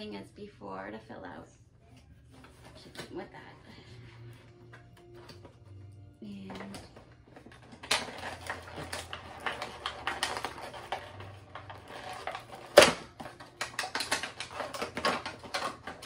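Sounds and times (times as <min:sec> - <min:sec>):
cardboard packaging crinkling: 0:06.6 - 0:16.0.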